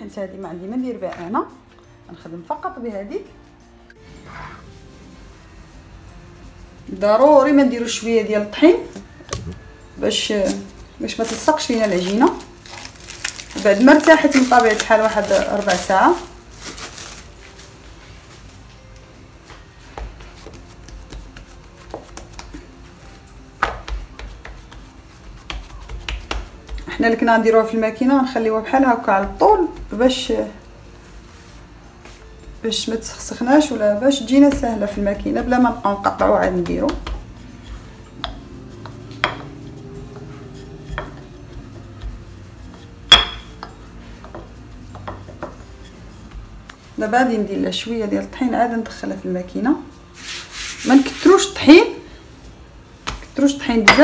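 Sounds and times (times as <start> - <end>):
rolling pin rolling dough: 19.5 - 52.0
dough thuds and taps: 19.9 - 22.7, 23.6 - 27.0, 29.1 - 30.0, 34.5 - 37.3, 53.0 - 54.0.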